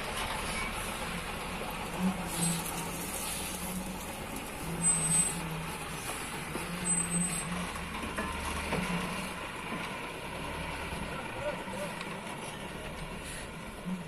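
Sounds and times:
lorry diesel engine running: 0:00.0 - 0:14.0.

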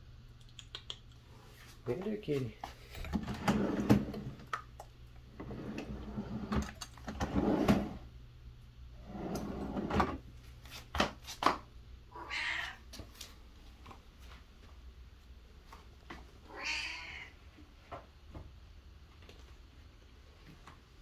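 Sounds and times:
drawers sliding open and shut: 0:03.0 - 0:04.5, 0:05.3 - 0:08.0, 0:09.0 - 0:10.2
cat meowing: 0:12.1 - 0:12.8, 0:16.5 - 0:17.4.

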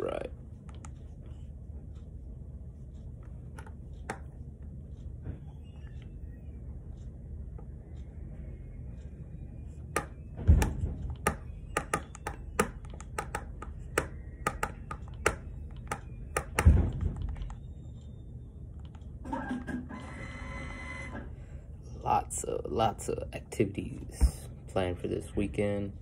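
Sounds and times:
sharp clicks and taps at desk: 0:09.9 - 0:17.6.

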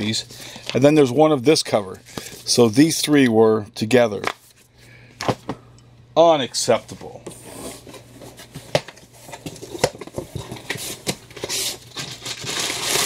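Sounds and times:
paper and cardboard rustling: 0:06.9 - 0:13.0.

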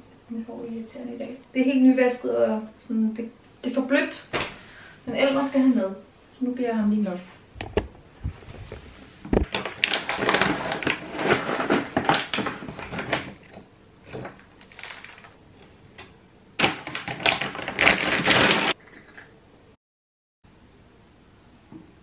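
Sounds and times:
plastic bag rustling: 0:08.2 - 0:15.4, 0:16.6 - 0:18.8.

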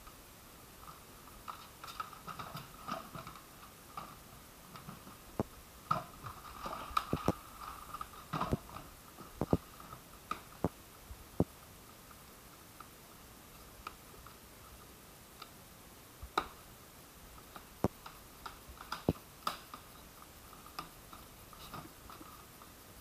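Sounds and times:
light rubbing of plastic: 0:17.4 - 0:23.0.

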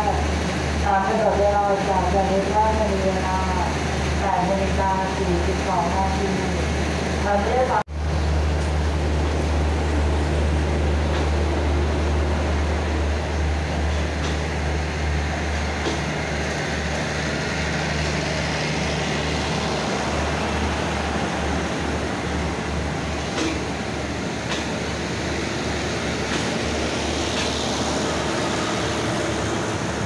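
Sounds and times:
diesel train engine droning: 0:00.0 - 0:30.0.

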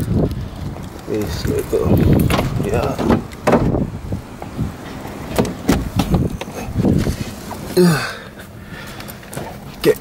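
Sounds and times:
car door thud: 0:02.2 - 0:03.9, 0:05.2 - 0:06.9.

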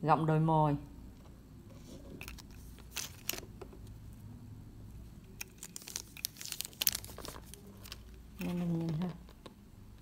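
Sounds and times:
sunglasses clicking and rustling: 0:01.8 - 0:04.0, 0:05.1 - 0:09.5.

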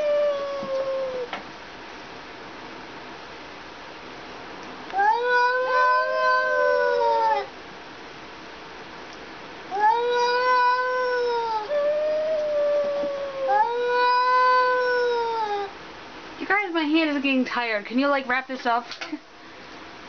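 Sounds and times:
cats yowling: 0:00.0 - 0:01.4, 0:04.9 - 0:07.6, 0:09.7 - 0:15.8.

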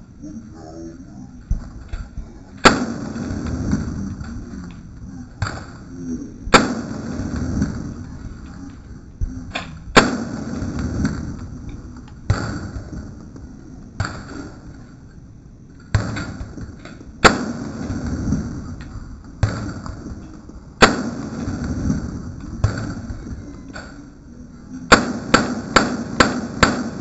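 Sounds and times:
rifle shots with echo: 0:02.6 - 0:04.5, 0:06.5 - 0:08.1, 0:09.9 - 0:13.2, 0:15.9 - 0:18.7, 0:20.8 - 0:23.9, 0:24.9 - 0:27.0.

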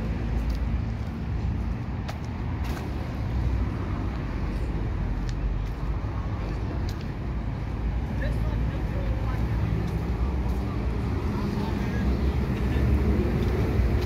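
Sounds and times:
motor vehicles rumbling: 0:00.0 - 0:14.0.

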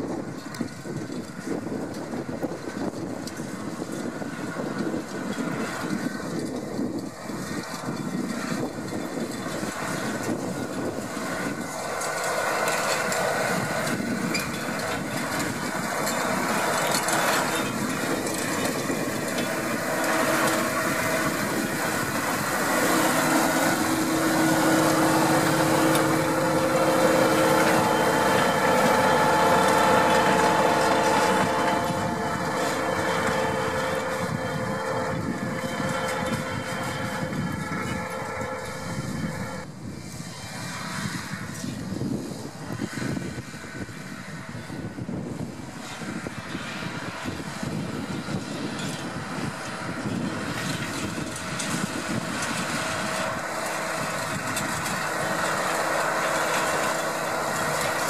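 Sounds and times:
tractor engine under load: 0:00.0 - 0:58.0.

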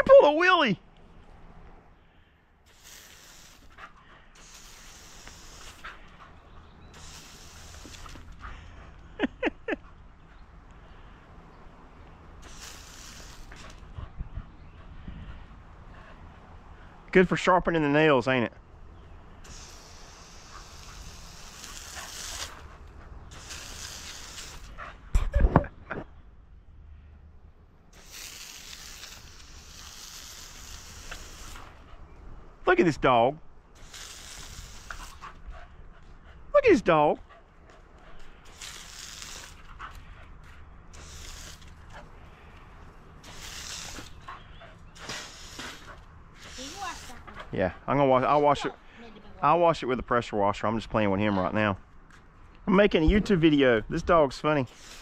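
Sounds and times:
pressure washer spraying concrete: 0:02.7 - 0:03.8, 0:04.4 - 0:06.0, 0:06.9 - 0:08.3, 0:12.4 - 0:13.8, 0:19.5 - 0:24.7, 0:28.0 - 0:31.8, 0:33.8 - 0:35.2, 0:38.5 - 0:39.7, 0:40.9 - 0:41.9, 0:43.2 - 0:44.3, 0:44.9 - 0:47.3, 0:54.6 - 0:55.0.

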